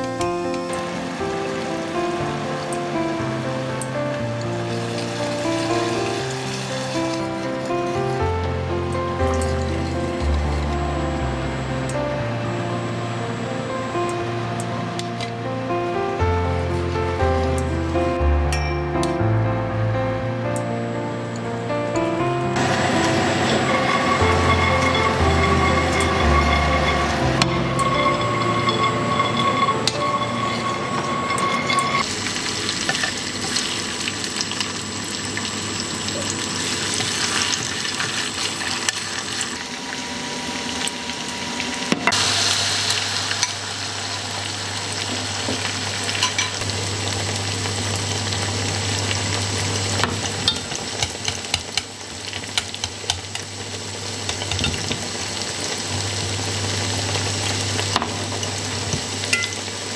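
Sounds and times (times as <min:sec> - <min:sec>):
egg mixture sizzling in oil: 0:00.0 - 0:08.2, 0:22.6 - 0:59.9.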